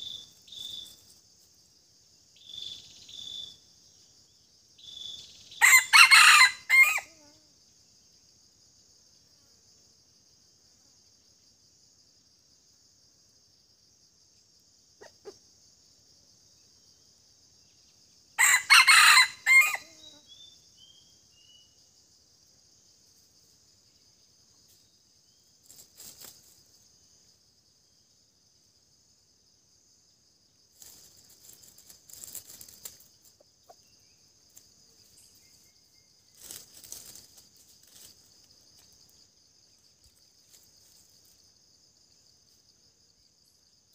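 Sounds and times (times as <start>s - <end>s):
rooster crowing: 5.6s - 7.2s, 18.4s - 20.0s.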